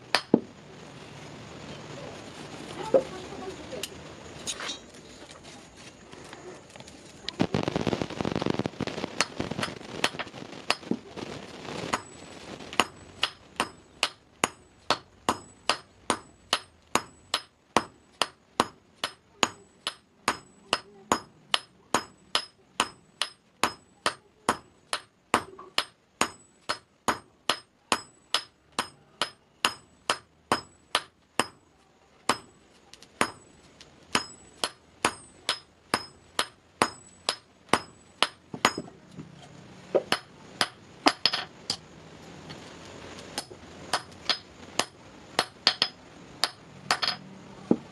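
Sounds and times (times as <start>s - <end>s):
hammer striking iron on anvil: 12.8s - 31.6s, 32.3s - 32.6s, 33.2s - 33.5s, 34.1s - 38.9s, 40.1s - 41.8s, 43.4s - 47.8s.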